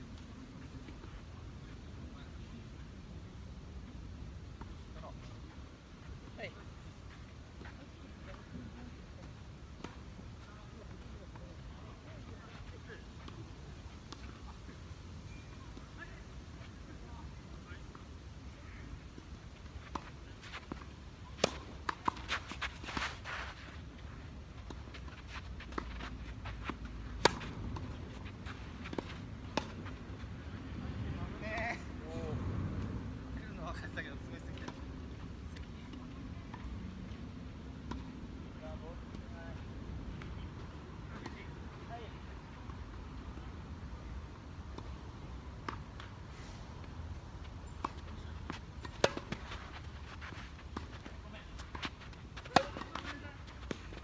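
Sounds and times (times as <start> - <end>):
tennis ball struck by rackets: 47.8 - 49.9, 51.7 - 53.8
tennis ball popping off rackets: 50.7 - 54.0.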